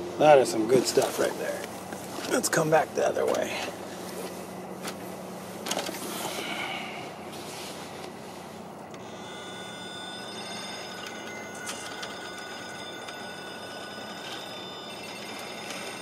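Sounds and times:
electric motor whining: 0:08.8 - 0:16.0.

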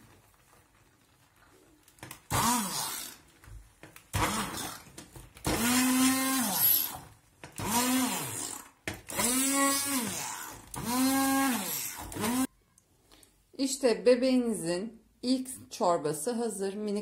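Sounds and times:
immersion blender motor whirring: 0:02.3 - 0:03.2, 0:04.2 - 0:12.5.

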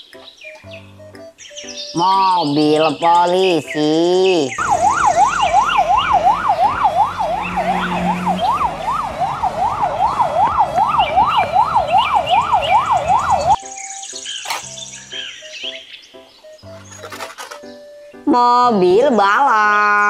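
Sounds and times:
police siren yelping: 0:04.6 - 0:13.6.

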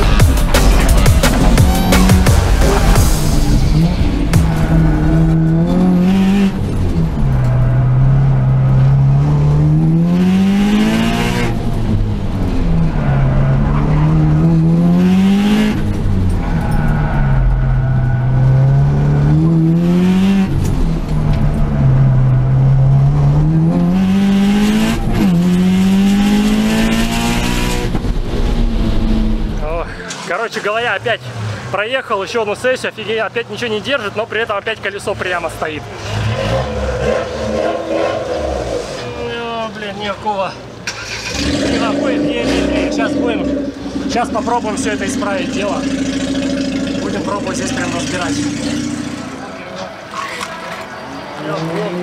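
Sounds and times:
car engine revving: 0:00.0 - 0:30.1, 0:35.0 - 0:39.4, 0:40.6 - 0:52.0
tyres squealing: 0:00.2 - 0:03.0.

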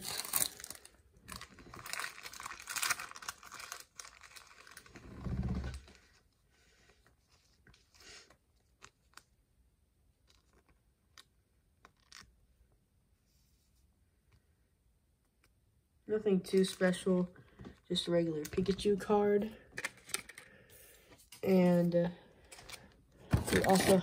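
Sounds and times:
plastic packaging crinkling: 0:00.0 - 0:05.1, 0:22.4 - 0:24.0.

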